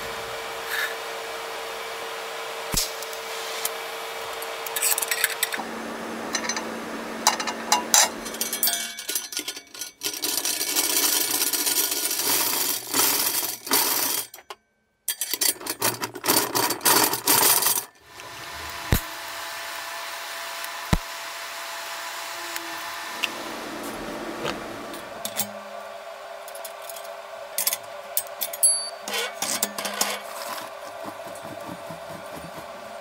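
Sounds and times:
welding arc hissing: 2.7s - 5.2s, 18.2s - 28.5s
steel rods clinking and scraping: 7.3s - 14.4s, 27.6s - 30.8s.

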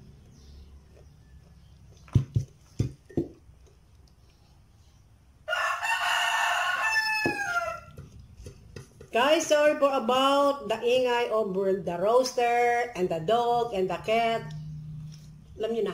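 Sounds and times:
rooster crowing: 5.4s - 8.0s.

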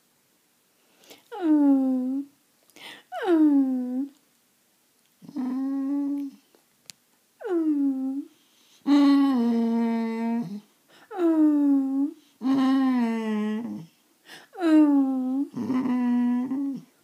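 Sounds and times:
dog whining moans: 1.3s - 2.3s, 3.1s - 4.2s, 5.2s - 6.4s, 7.4s - 17.0s.

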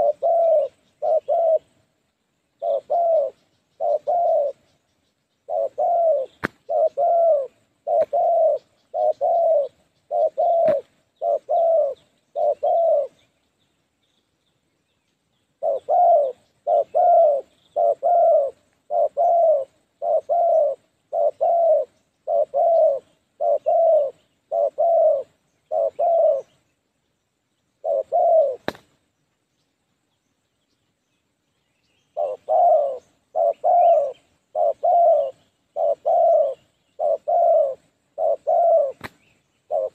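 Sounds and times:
doves cooing: 0.0s - 13.3s, 15.6s - 26.7s, 27.8s - 29.0s, 32.1s - 39.9s.

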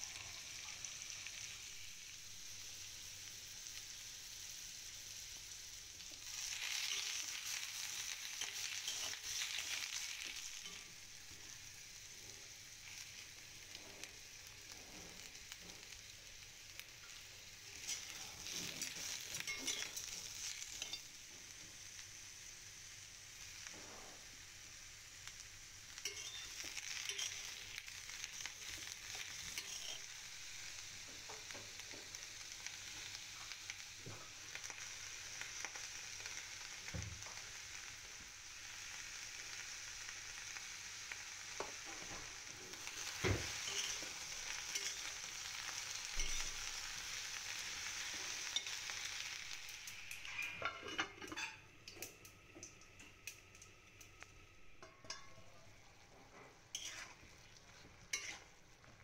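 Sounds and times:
vegetables sizzling in a pot: 0.0s - 59.0s
spoon stirring and scraping: 8.4s - 11.0s, 17.8s - 21.1s, 26.0s - 27.6s, 28.6s - 30.1s, 43.5s - 45.2s, 50.1s - 52.0s, 54.8s - 58.6s.

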